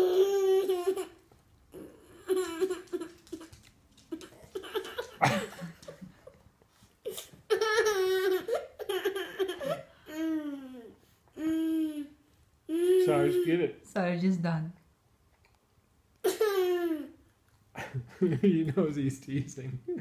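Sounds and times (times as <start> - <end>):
toddler giggling: 0.0 - 6.1, 7.0 - 12.1.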